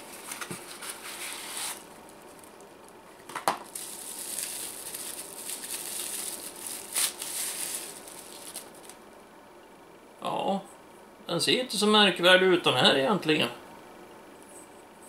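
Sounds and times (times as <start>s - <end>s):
bubble wrap crinkling: 0.0s - 9.0s.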